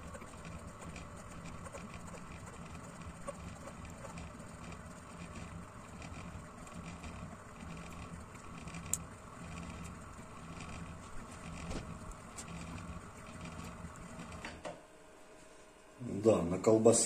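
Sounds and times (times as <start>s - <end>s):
stepper motors humming: 0.0s - 14.6s.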